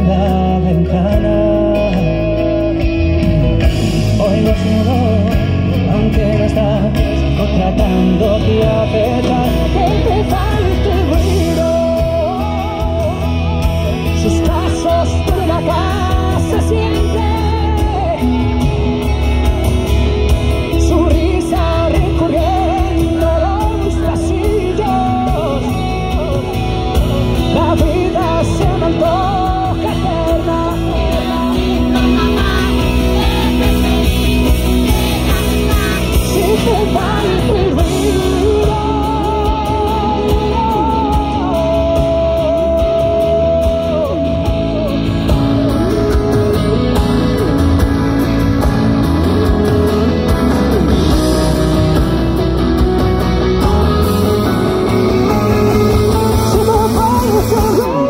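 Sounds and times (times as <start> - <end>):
live band playing pop ballad: 0.0 - 58.0
man singing: 0.0 - 58.0.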